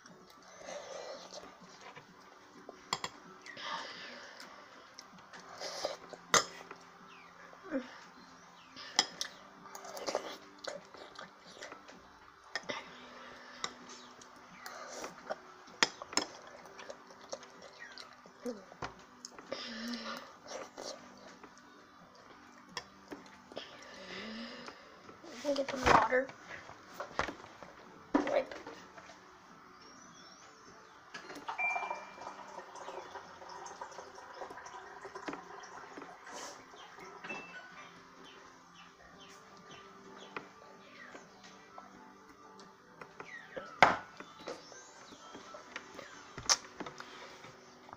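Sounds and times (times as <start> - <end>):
water running into a cup: 31.5 - 36.6.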